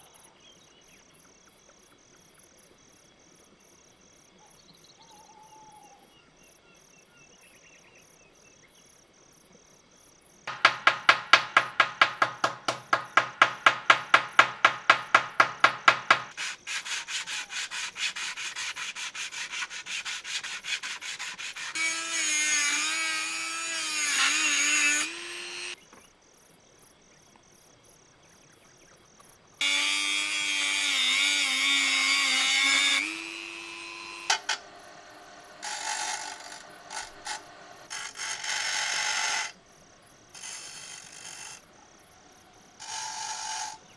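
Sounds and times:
rotary tool cutting metal rod: 0:10.5 - 0:25.8, 0:29.6 - 0:39.6, 0:40.4 - 0:41.6, 0:42.8 - 0:43.9
sandpaper rubbing by hand: 0:14.7 - 0:25.8.

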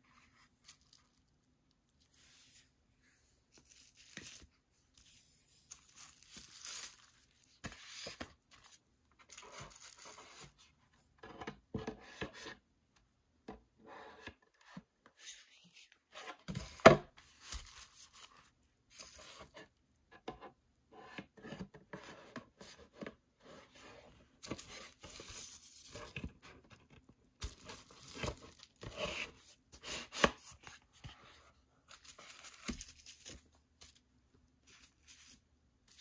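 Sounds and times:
cardboard and paper rustling: 0:02.0 - 0:10.8, 0:15.6 - 0:19.7, 0:21.5 - 0:36.0.

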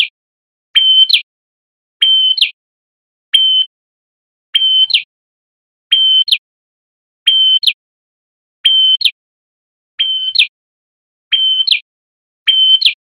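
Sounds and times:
songbird whistling call: 0:00.8 - 0:01.3, 0:02.0 - 0:02.6, 0:03.3 - 0:03.8, 0:04.5 - 0:05.1, 0:05.9 - 0:06.4, 0:07.2 - 0:07.8, 0:08.6 - 0:09.2, 0:10.0 - 0:10.5, 0:11.3 - 0:11.8, 0:12.5 - 0:13.0.

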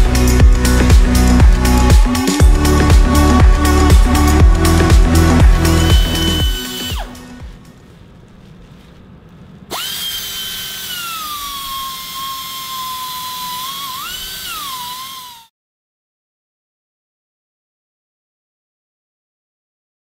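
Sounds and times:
high-pitched motor whine: 0:00.0 - 0:07.7, 0:09.7 - 0:15.5.

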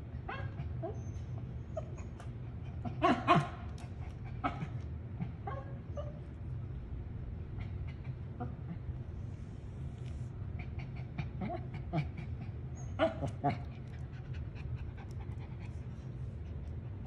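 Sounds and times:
dog barking: 0:03.0 - 0:03.7, 0:05.4 - 0:06.2, 0:13.0 - 0:13.6.

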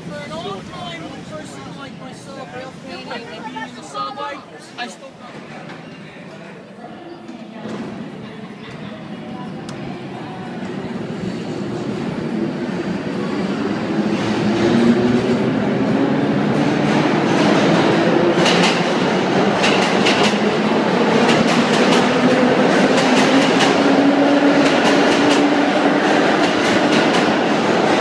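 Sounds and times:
train roar: 0:10.1 - 0:28.0.

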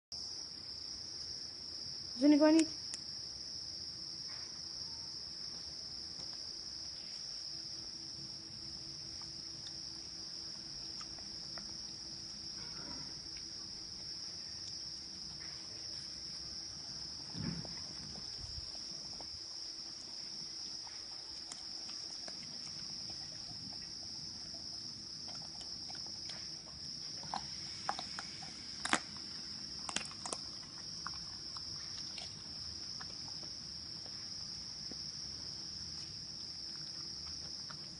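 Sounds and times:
crickets trilling: 0:00.2 - 0:37.9
dull thump: 0:17.3 - 0:18.2
dog crunching bones: 0:20.5 - 0:34.1.

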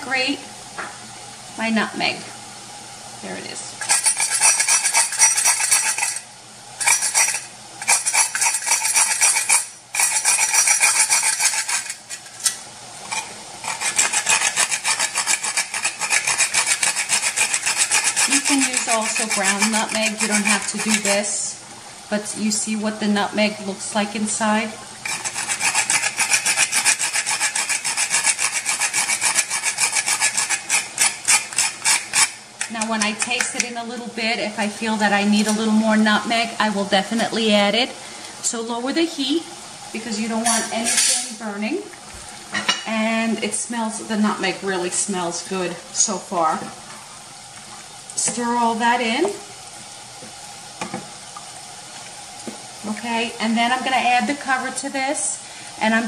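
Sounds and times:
nutmeg scraping on metal grater: 0:03.8 - 0:06.2, 0:06.8 - 0:21.1, 0:25.0 - 0:33.4.

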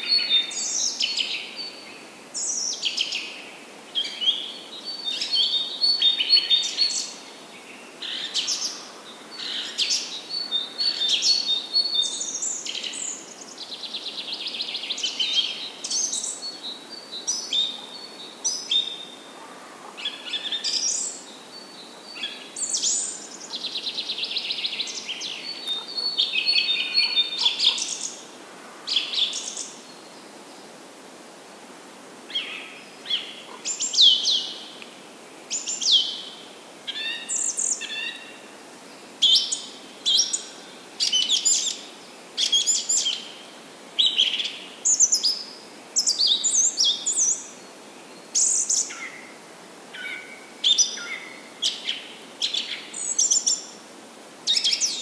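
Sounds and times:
faint steady hiss: 0:00.0 - 0:55.0
birds chirping and calling: 0:22.2 - 0:28.2.

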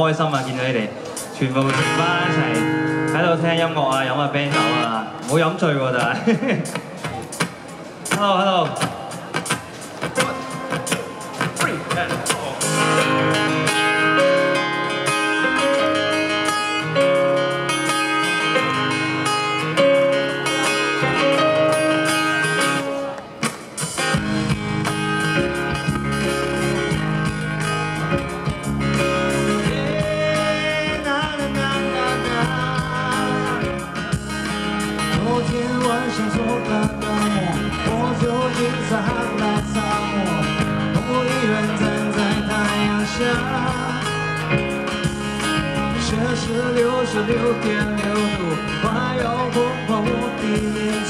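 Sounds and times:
guitar: 0:00.0 - 0:51.0
live band playing: 0:00.0 - 0:51.0
bass: 0:24.0 - 0:51.0.

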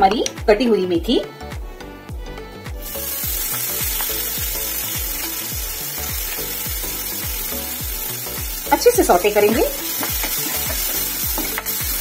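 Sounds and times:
leaves sizzling in hot oil: 0:02.8 - 0:12.0.

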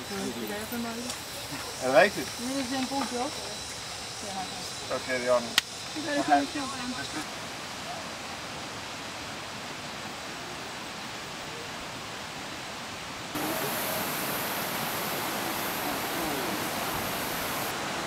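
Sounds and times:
steady outdoor rushing noise: 0:13.2 - 0:18.0.

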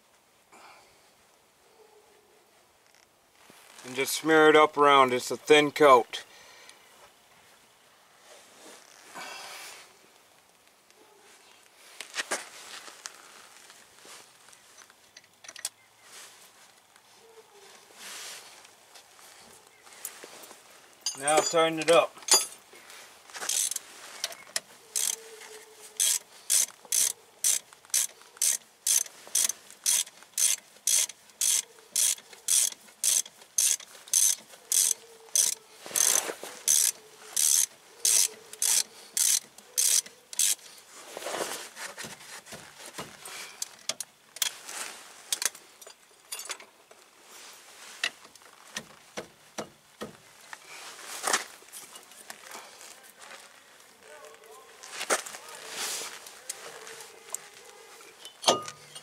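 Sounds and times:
ratchet wrench clicking: 0:23.5 - 0:23.8, 0:25.0 - 0:25.2, 0:26.0 - 0:40.6.

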